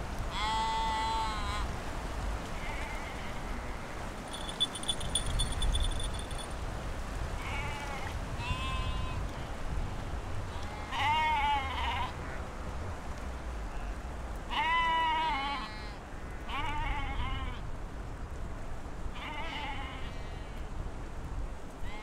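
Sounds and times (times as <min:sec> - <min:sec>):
sheep bleating: 0:10.6 - 0:12.2, 0:14.5 - 0:17.6, 0:19.2 - 0:20.5.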